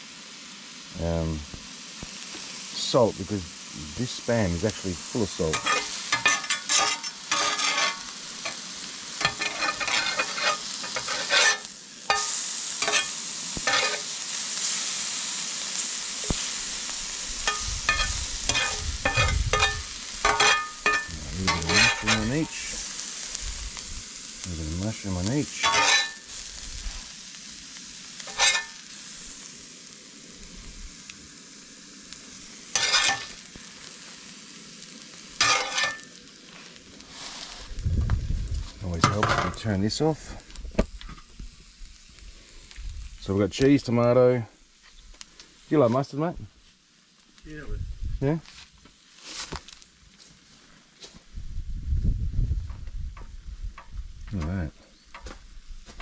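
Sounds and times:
meat sizzling in a pan: 0:00.0 - 0:51.4
utensil scraping a pan: 0:05.4 - 0:08.6, 0:09.2 - 0:14.1, 0:17.4 - 0:22.8, 0:25.5 - 0:26.3, 0:28.2 - 0:28.8, 0:32.7 - 0:33.4, 0:35.4 - 0:36.1.

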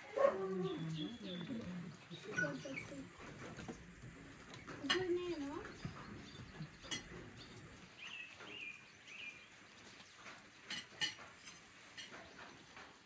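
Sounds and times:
small bird chirping: 0:04.5 - 0:09.6
tableware clinking: 0:10.7 - 0:12.3.

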